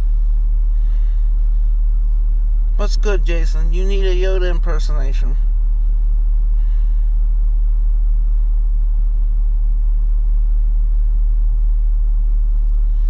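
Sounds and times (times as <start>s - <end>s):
car engine rumble from inside: 0.0s - 13.0s.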